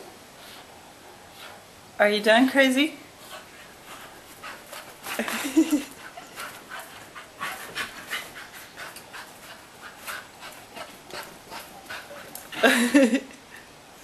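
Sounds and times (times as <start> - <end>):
dog panting: 3.1 - 12.7.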